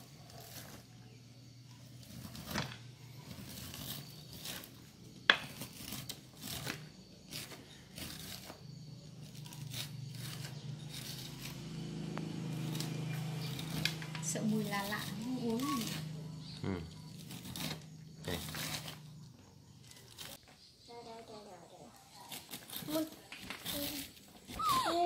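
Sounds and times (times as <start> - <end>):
knife scraping corn kernels: 0.0 - 20.4, 22.0 - 25.0.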